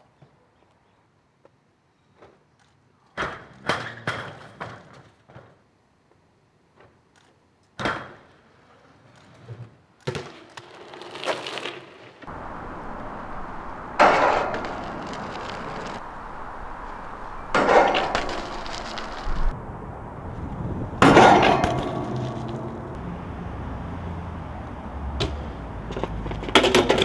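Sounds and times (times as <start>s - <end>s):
bike rolling noise: 3.2s - 27.0s
bike scraping crashes: 7.8s - 19.5s, 21.0s - 23.0s, 25.2s - 27.0s
bike knocks: 21.0s - 22.9s.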